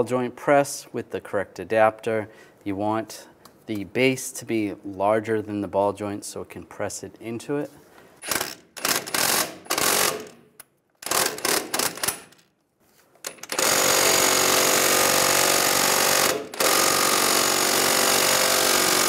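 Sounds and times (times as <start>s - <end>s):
impact wrench hammering: 8.2s - 12.4s, 13.3s - 19.0s.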